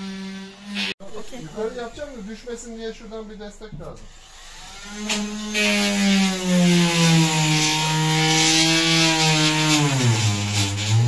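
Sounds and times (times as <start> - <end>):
cordless power tool motor: 4.0 - 11.0.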